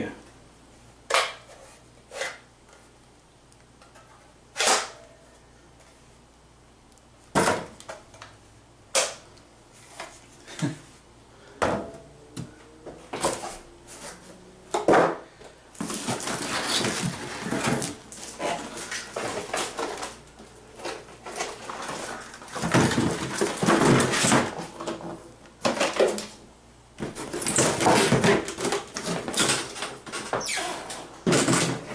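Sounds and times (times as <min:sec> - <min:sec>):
plastic parts knocking in box: 0:15.8 - 0:20.2, 0:20.8 - 0:26.3, 0:27.0 - 0:30.4, 0:31.2 - 0:31.9
cardboard rustling: 0:15.8 - 0:26.2.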